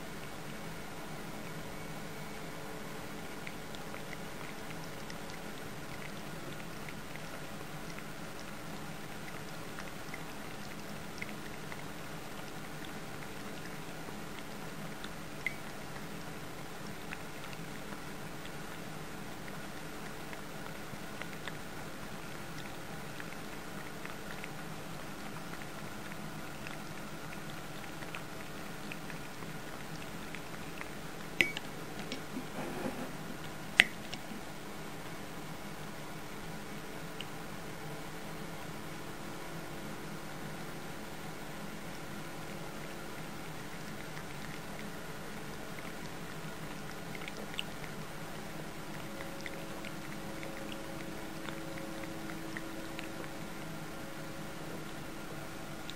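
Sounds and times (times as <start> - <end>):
background hiss: 0.0 - 3.4
cat eating: 0.0 - 55.9
faint hum: 0.0 - 55.9.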